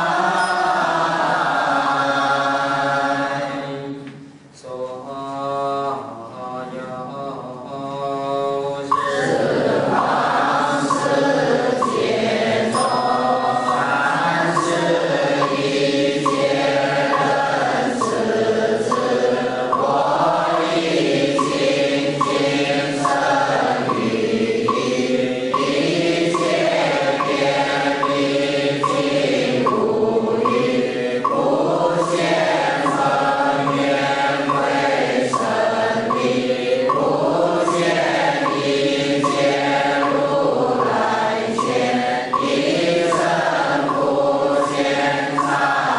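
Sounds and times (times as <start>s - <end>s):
congregation chanting: 0.0s - 45.9s
wooden fish struck: 11.8s - 20.7s, 21.3s - 45.6s.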